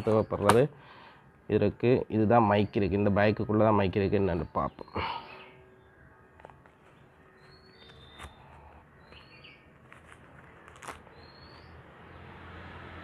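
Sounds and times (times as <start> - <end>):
bird rising chirp: 2.4 - 9.9, 10.5 - 12.4.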